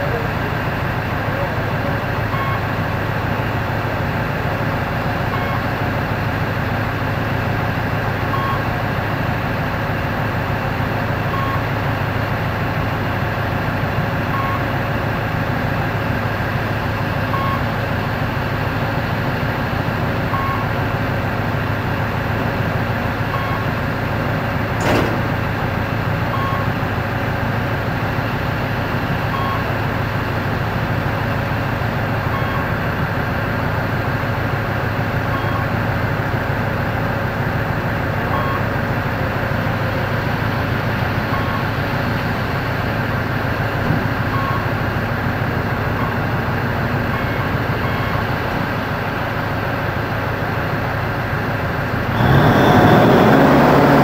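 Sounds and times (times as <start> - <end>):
heavy machine engine humming: 0.0 - 54.0
high warning beep: 2.3 - 2.8, 5.3 - 5.7, 8.3 - 8.8, 11.3 - 11.7, 14.3 - 14.7, 17.3 - 17.7, 20.3 - 20.8, 23.3 - 23.7, 26.3 - 26.8, 29.3 - 29.7, 32.3 - 32.8, 35.3 - 35.8, 38.3 - 38.7, 44.3 - 44.8
sharp click: 24.8 - 25.4.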